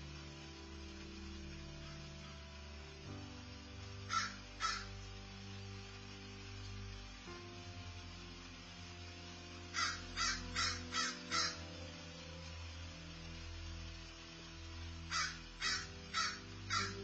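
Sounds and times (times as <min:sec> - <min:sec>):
crow cawing: 0:04.1 - 0:04.9, 0:09.8 - 0:11.6, 0:15.1 - 0:17.0.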